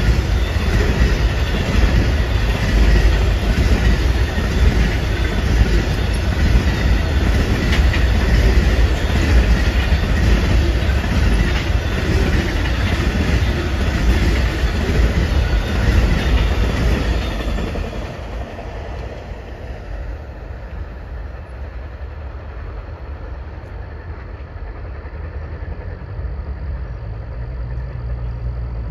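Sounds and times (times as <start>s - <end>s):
wheels clicking over rail joints: 0.0s - 19.2s
train cars rumbling past: 0.0s - 28.9s.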